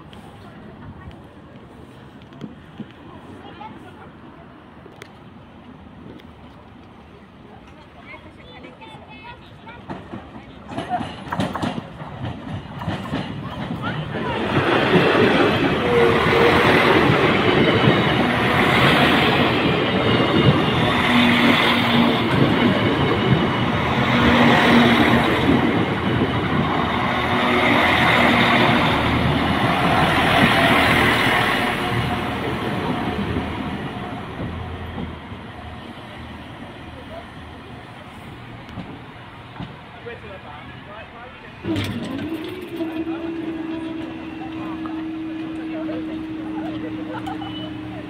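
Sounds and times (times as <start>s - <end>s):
train engines running: 0.0s - 48.0s
train wheels clickety-clack: 9.3s - 35.4s, 38.6s - 39.9s.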